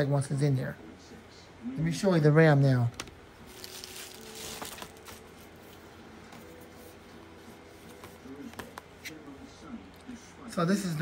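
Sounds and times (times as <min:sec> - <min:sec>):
plastic mailer crinkling: 0:03.4 - 0:05.3.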